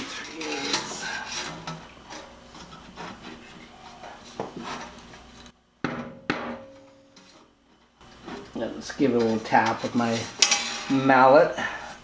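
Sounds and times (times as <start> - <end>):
metal knocks and clatter: 10.4 - 11.0.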